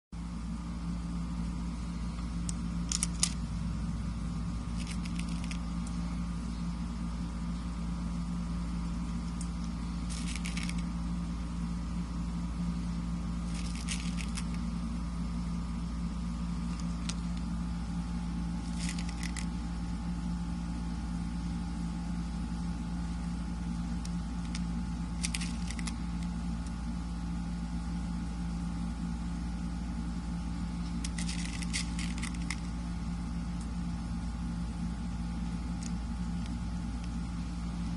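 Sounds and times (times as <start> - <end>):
low mechanical hum: 0.1 - 37.9.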